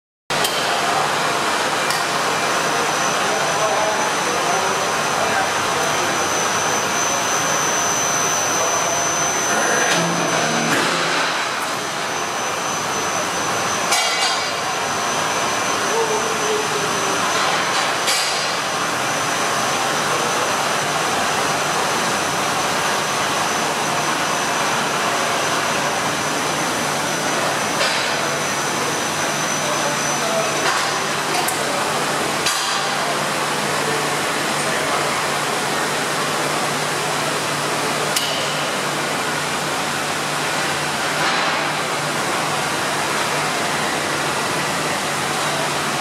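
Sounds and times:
whirring machinery: 0.3 - 46.0
thin high whine: 2.7 - 36.2.

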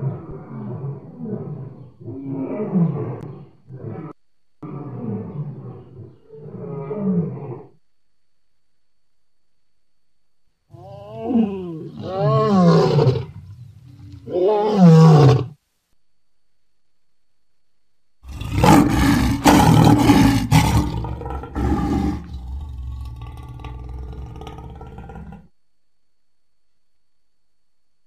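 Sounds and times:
lion roaring: 0.0 - 7.8, 10.7 - 15.6, 18.2 - 25.5.

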